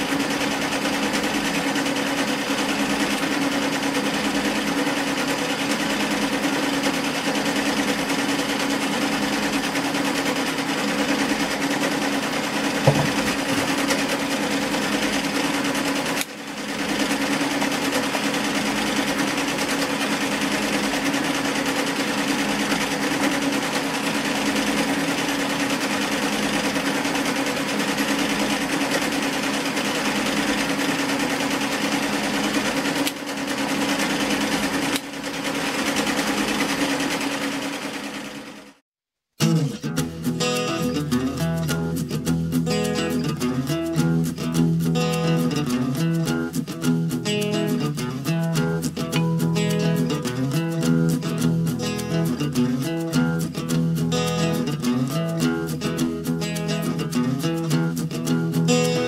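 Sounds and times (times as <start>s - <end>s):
sewing machine stitching: 0.0s - 38.8s.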